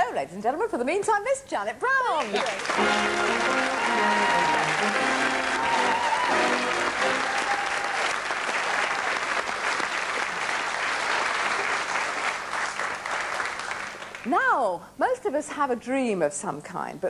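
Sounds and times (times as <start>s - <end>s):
audience applauding: 2.2s - 14.3s
music playing: 2.6s - 7.8s.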